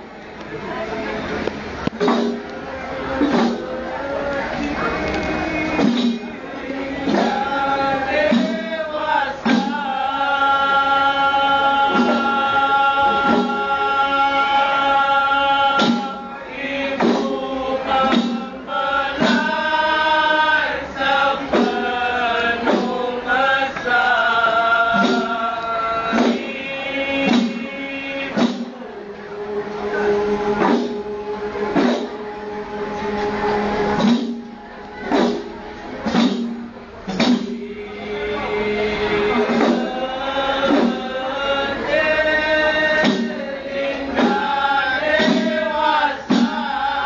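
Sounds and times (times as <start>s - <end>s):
frame drums struck in unison: 1.4s - 47.0s
men singing a chant: 2.0s - 34.3s, 37.1s - 47.0s.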